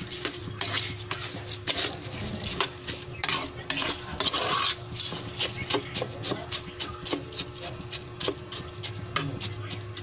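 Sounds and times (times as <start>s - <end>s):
metal spoon scraping pot: 0.0s - 10.0s.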